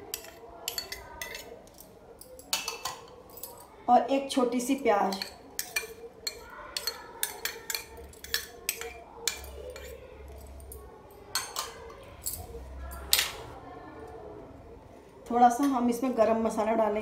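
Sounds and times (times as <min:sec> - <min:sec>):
metal spoon clinking bowls: 0:00.0 - 0:03.7, 0:05.0 - 0:13.4.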